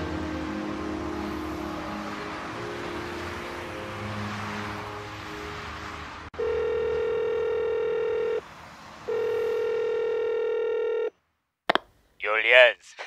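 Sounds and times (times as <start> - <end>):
telephone ringing tone beeps: 6.4 - 8.4, 9.1 - 11.1
faint background noise: 11.8 - 13.0.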